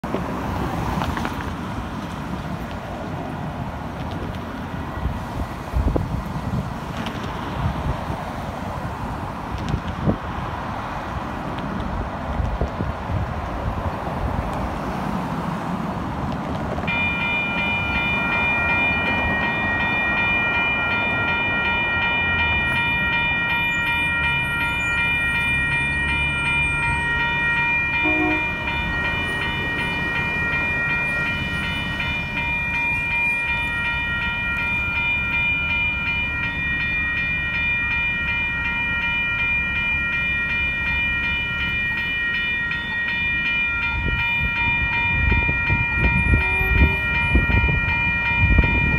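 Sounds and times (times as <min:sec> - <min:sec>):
railroad crossing bell ringing: 0:16.9 - 0:48.9.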